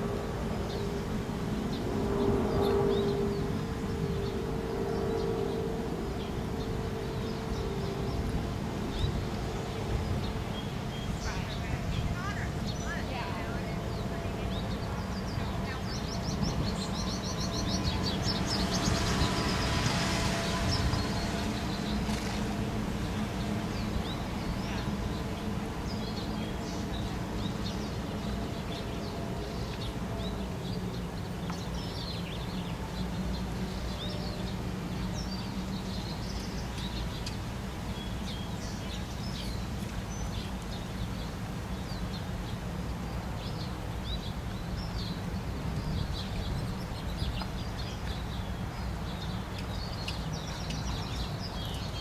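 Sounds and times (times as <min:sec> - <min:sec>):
low background rumble: 0:00.0 - 0:41.0
small birds chirping: 0:00.0 - 0:52.0.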